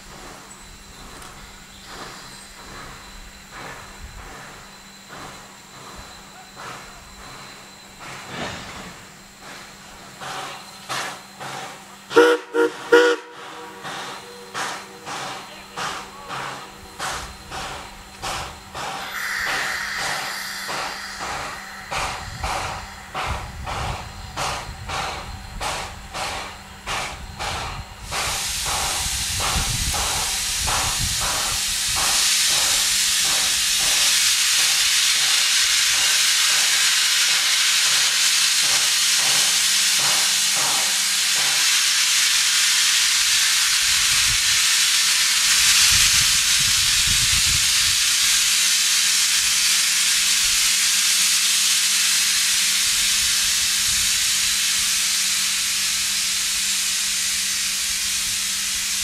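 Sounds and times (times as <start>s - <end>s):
steam locomotive hissing: 0.0s - 59.0s.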